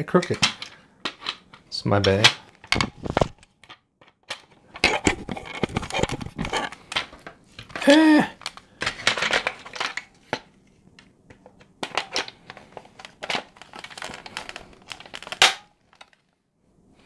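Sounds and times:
crinkly rustling: 4.3 - 10.8, 11.8 - 16.4.

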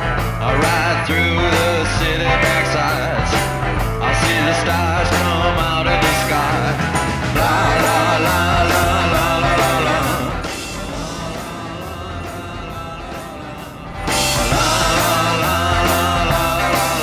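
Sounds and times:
rock song with sung vocals: 0.0 - 17.0.

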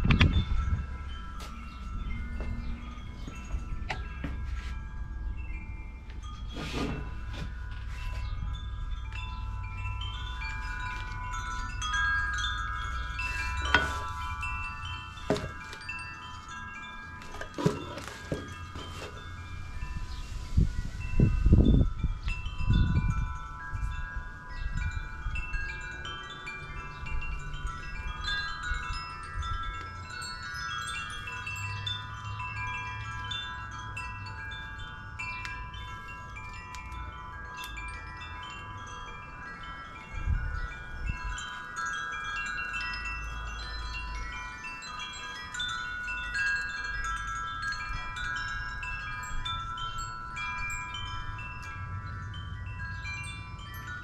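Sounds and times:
metal wind chimes ringing: 0.0 - 54.0.

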